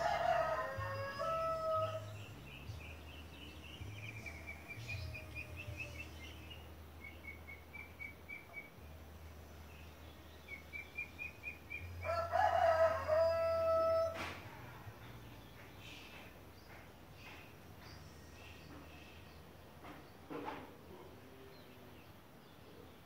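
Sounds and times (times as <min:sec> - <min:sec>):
rooster crowing: 0:00.0 - 0:02.2, 0:12.0 - 0:14.5
small bird chirping: 0:02.0 - 0:08.9.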